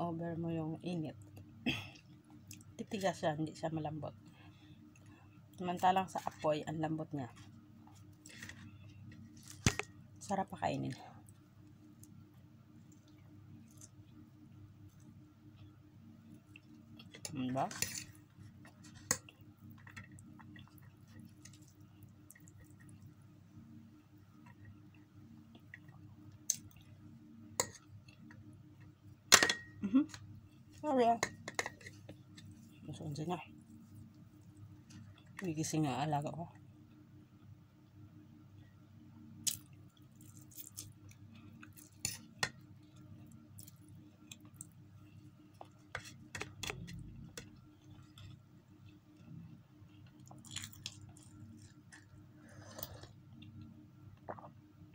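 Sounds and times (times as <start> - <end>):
low steady hum: 0.0 - 54.9
person chewing noodles: 49.9 - 53.6.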